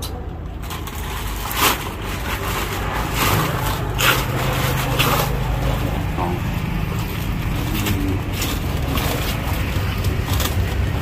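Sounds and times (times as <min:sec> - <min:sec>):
plastic sheeting rustling: 0:00.6 - 0:11.0.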